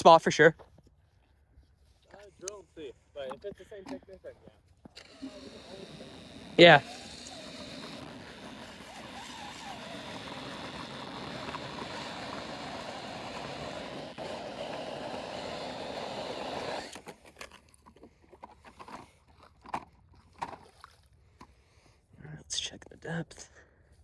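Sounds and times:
drill boring through ice: 4.9s - 17.6s.

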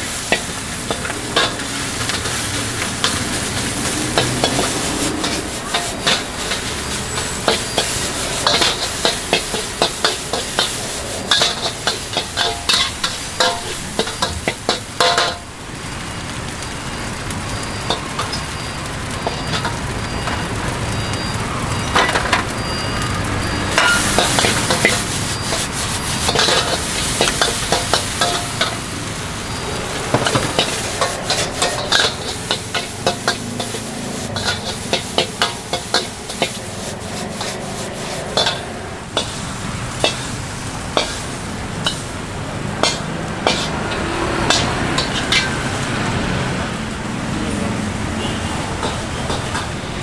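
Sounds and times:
spatula scraping pan: 0.0s - 15.4s, 23.6s - 28.9s, 29.6s - 40.3s, 41.0s - 42.1s, 42.8s - 45.6s, 48.8s - 50.0s
food sizzling in pan: 0.0s - 50.0s.

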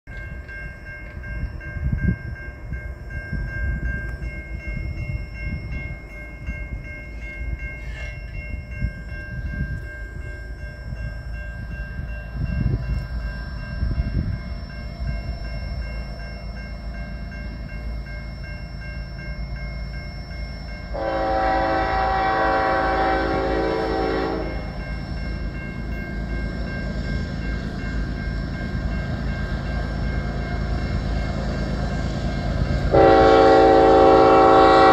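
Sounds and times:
locomotive engine rumble: 0.1s - 34.9s
locomotive air horn blast: 20.9s - 24.7s, 32.9s - 34.9s.

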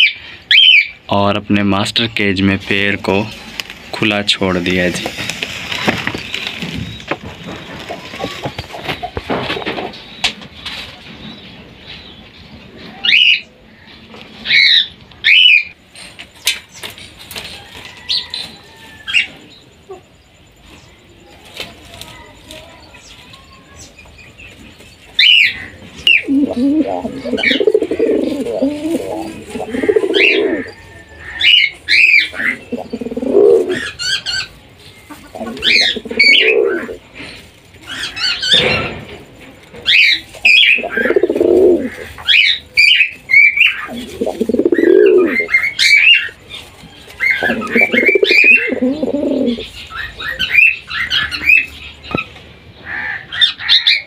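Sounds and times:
pigeons cooing: 0.0s - 1.0s, 4.7s - 10.3s, 24.6s - 39.1s, 39.8s - 52.3s
small birds chirping: 0.0s - 54.0s.

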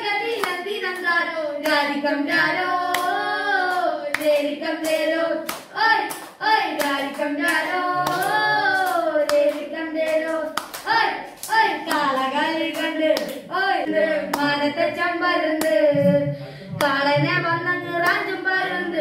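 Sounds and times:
boys singing together: 0.0s - 19.0s
sharp hand claps: 0.3s - 13.5s, 15.6s - 15.9s.

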